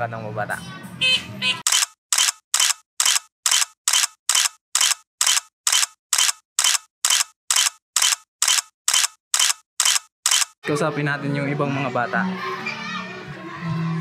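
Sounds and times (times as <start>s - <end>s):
camera shutter clicking: 1.7s - 10.6s.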